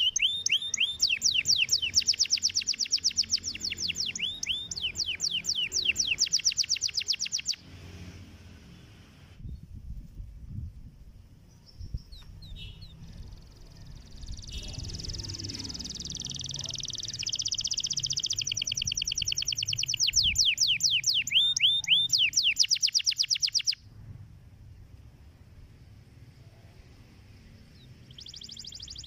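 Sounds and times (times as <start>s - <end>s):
canary singing: 0.0s - 7.8s, 11.5s - 23.9s, 27.5s - 29.0s.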